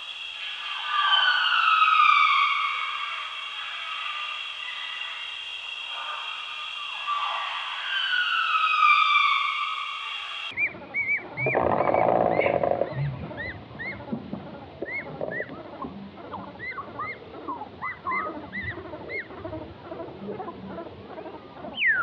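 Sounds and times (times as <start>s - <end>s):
birds chirping: 0.5s - 22.0s
rough animal call: 11.2s - 19.5s.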